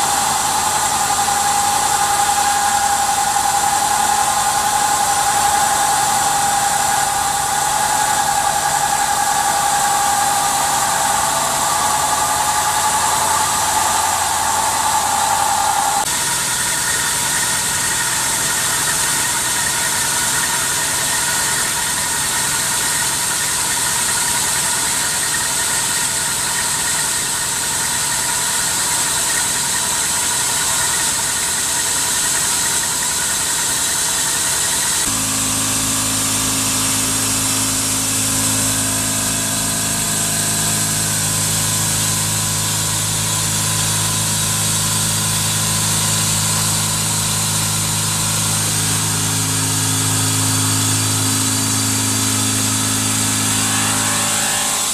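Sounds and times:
deep steady machine hum: 0:00.0 - 0:16.1, 0:35.0 - 0:54.9
milling machine cutting metal: 0:00.0 - 0:16.1, 0:34.8 - 0:54.9
coolant spray hissing: 0:35.1 - 0:54.4.

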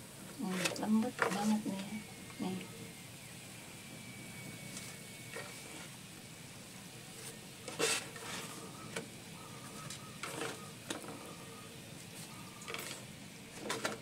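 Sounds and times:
rice cakes sizzling on grill pan: 0:00.0 - 0:14.0
spatula scraping and knocking pan: 0:07.2 - 0:11.2.

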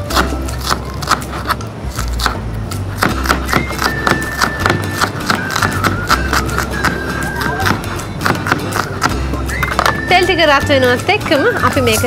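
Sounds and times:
background music: 0:00.0 - 0:12.0
knife chopping on cutting board: 0:00.1 - 0:02.4, 0:03.0 - 0:07.0, 0:07.6 - 0:10.0.

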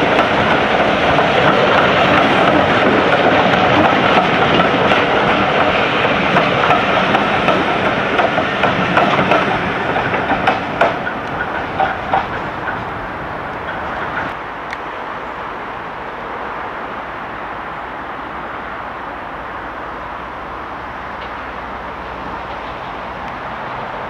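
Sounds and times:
train wheels clacking over rails: 0:00.0 - 0:14.4, 0:21.1 - 0:24.0.

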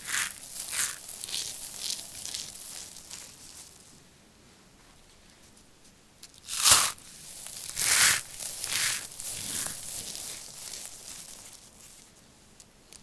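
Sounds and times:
loud crunch of soap ball: 0:00.0 - 0:03.8, 0:06.3 - 0:12.0
dry soap shreds crunching: 0:00.0 - 0:04.0, 0:06.3 - 0:12.2.

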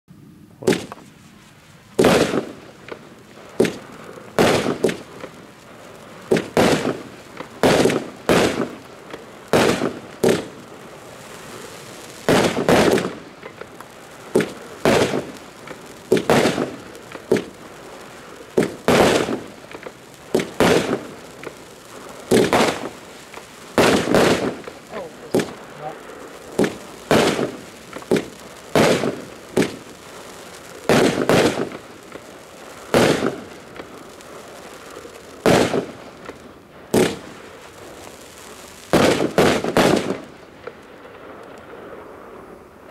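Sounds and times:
firework bangs: 0:00.6 - 0:42.9.

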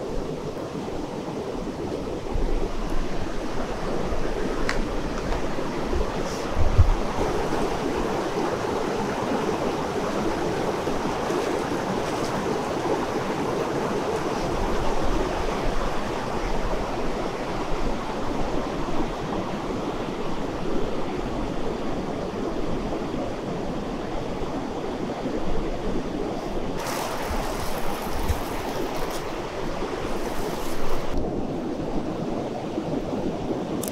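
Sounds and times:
river rushing over rocks: 0:26.7 - 0:31.2.

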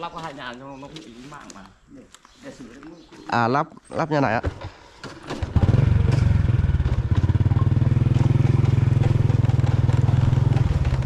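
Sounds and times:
small motorcycle engine running: 0:05.3 - 0:11.0.

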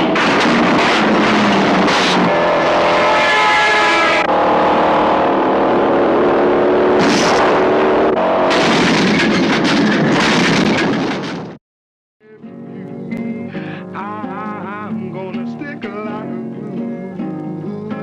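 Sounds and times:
knocks and crashes: 0:00.0 - 0:02.3, 0:07.0 - 0:07.6, 0:08.4 - 0:11.6
car engines revving hard: 0:00.0 - 0:10.2.

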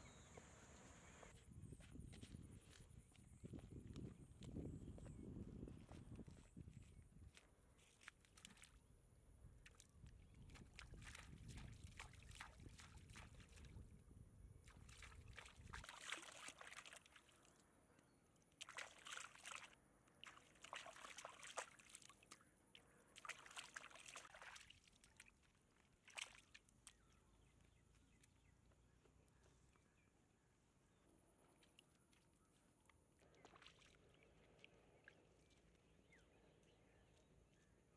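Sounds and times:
hands splashing in shallow water: 0:09.6 - 0:13.9, 0:14.6 - 0:17.6, 0:18.5 - 0:27.2, 0:31.4 - 0:35.8.

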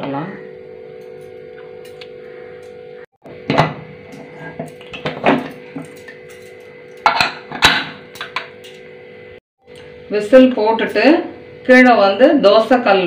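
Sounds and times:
steady hum: 0:00.0 - 0:13.0
metal lid clanks: 0:03.5 - 0:08.8.

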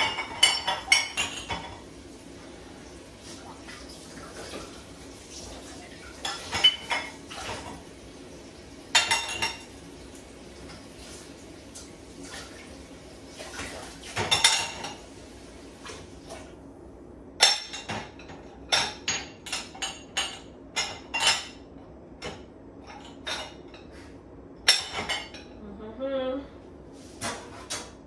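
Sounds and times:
dishes clinking in dishwasher rack: 0:00.0 - 0:01.9, 0:05.9 - 0:07.9, 0:08.9 - 0:09.8, 0:13.4 - 0:15.1, 0:17.4 - 0:23.9, 0:24.6 - 0:25.6, 0:27.2 - 0:28.0.

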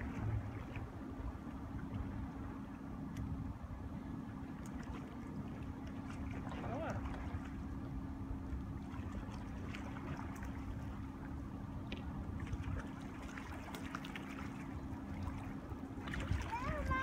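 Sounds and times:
low wind rumble: 0:00.0 - 0:13.7, 0:14.3 - 0:17.0
faint steady hum: 0:00.0 - 0:17.0
water trickling and lapping: 0:00.0 - 0:17.0.

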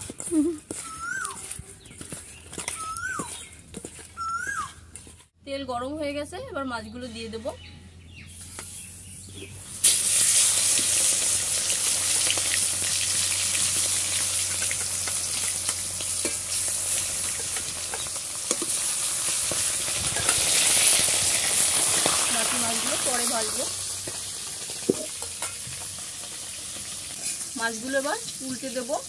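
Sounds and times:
fish sizzling in hot oil: 0:09.7 - 0:29.0.

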